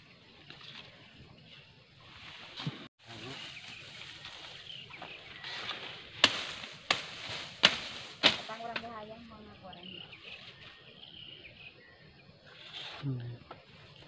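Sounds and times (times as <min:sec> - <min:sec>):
machete chopping plant: 0:06.2 - 0:08.9.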